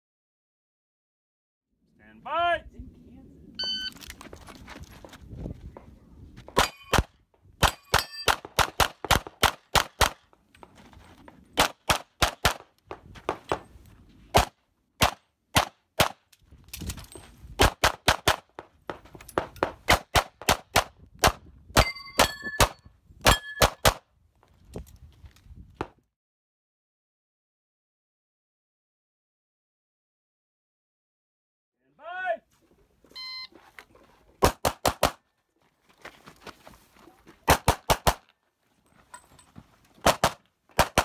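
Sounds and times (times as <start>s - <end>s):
pistol shots: 6.6s - 10.2s, 17.6s - 18.6s, 37.5s - 38.2s, 40.0s - 41.0s
steel targets clanging: 7.8s - 8.3s.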